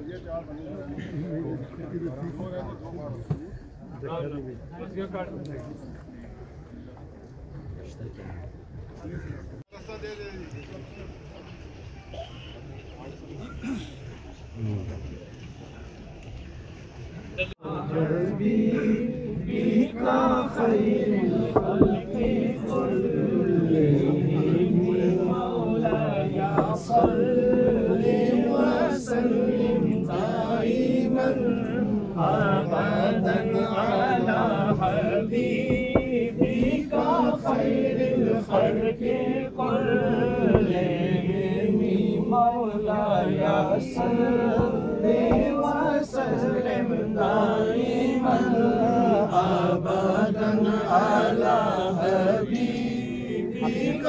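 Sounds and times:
men chanting together: 0:17.6 - 0:54.0.

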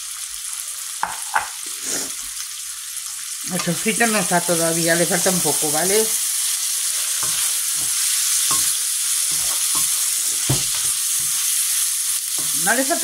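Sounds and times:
vegetables sizzling in oil: 0:00.0 - 0:13.0
wooden spoon scraping a pan: 0:06.7 - 0:13.0.

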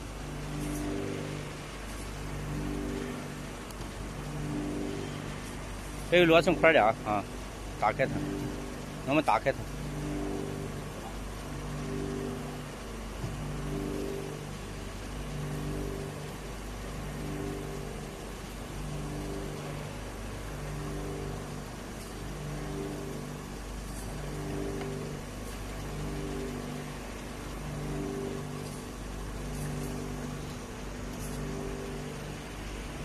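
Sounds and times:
pulsing mechanical drone: 0:00.0 - 0:33.0.

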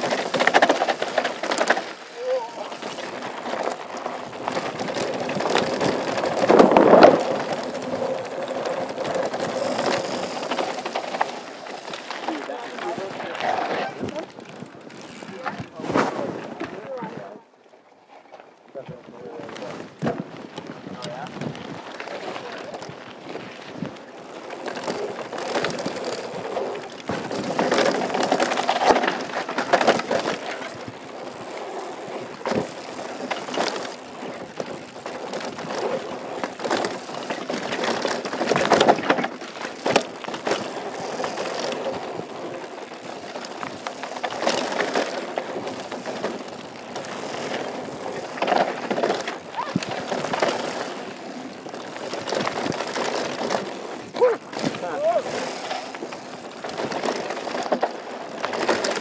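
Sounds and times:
tyres crunching over gravel: 0:00.0 - 0:16.3, 0:19.4 - 0:59.0
bike chain and frame clatter: 0:00.0 - 0:17.0, 0:19.2 - 0:59.0.

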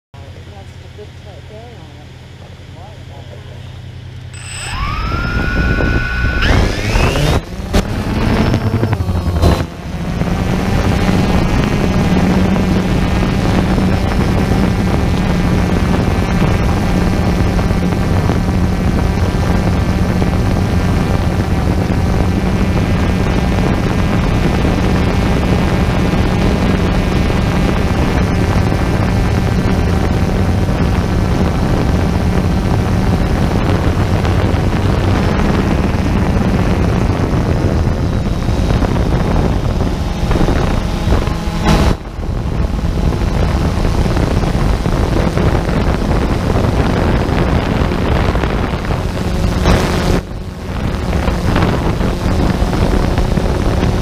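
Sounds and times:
drone propellers whining: 0:00.9 - 0:54.0.

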